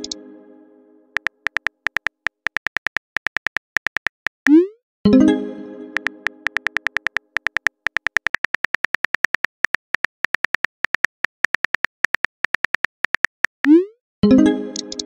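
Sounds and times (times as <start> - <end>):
phone keyboard clicks: 1.2 - 4.5, 6.0 - 13.6.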